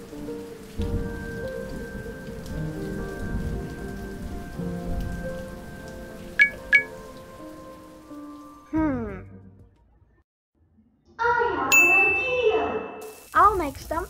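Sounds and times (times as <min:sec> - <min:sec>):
rain falling: 0:00.0 - 0:08.7, 0:13.0 - 0:14.0
low thunder rumbles: 0:00.7 - 0:07.1
bright plinks: 0:06.4 - 0:06.9, 0:11.7 - 0:13.3.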